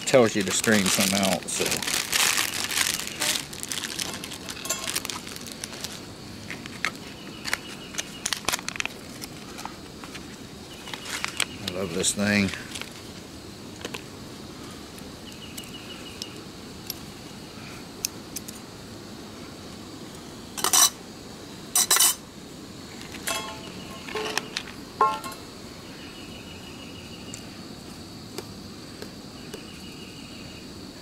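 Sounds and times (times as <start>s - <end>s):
insect trilling: 0.0s - 19.1s, 20.0s - 31.0s.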